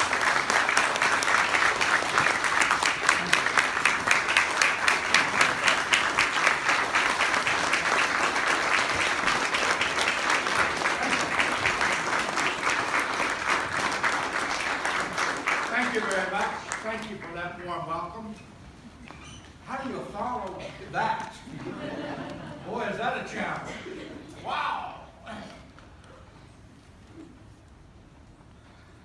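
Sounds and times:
loud nearby claps: 0.0 - 17.3
audience applauding: 0.0 - 17.5.

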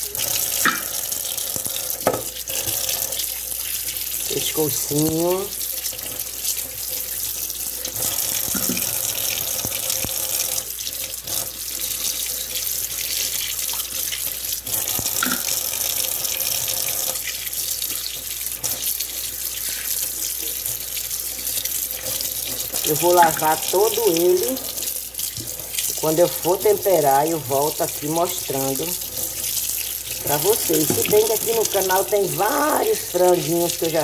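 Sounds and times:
tap running into metal sink: 0.6 - 1.0, 2.0 - 3.0, 8.4 - 9.8, 14.9 - 15.6, 30.6 - 31.5.

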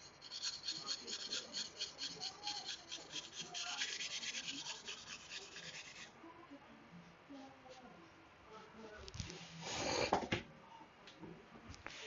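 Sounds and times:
knife scraping on whetstone: 0.0 - 6.1.

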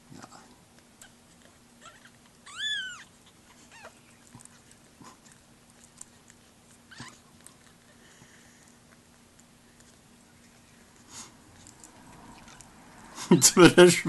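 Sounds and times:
kitten mewing: 1.8 - 4.0, 6.9 - 7.2.

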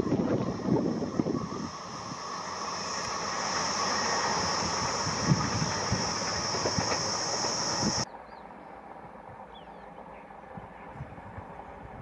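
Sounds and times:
high hiss: 0.0 - 8.0
train wheels clattering on rails: 1.8 - 8.0.

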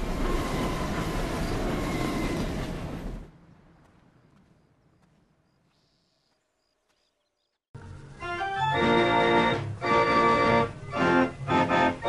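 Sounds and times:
organ music: 7.8 - 12.0.

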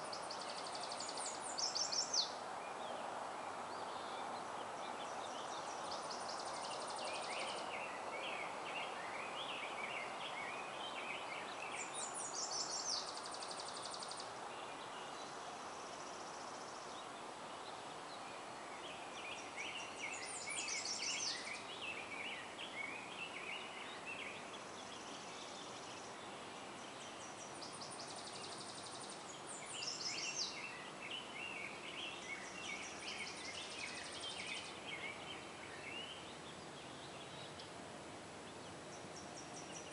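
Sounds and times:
distant road traffic hiss: 0.0 - 39.9
songbirds singing: 0.0 - 39.9.

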